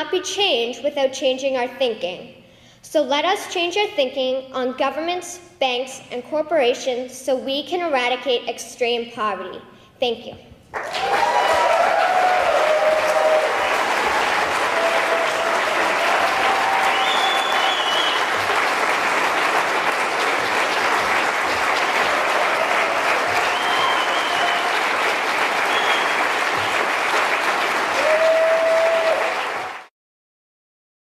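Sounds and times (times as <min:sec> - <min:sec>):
cheers: 0:10.8 - 0:19.6, 0:21.4 - 0:29.9
audience applauding: 0:10.8 - 0:29.9.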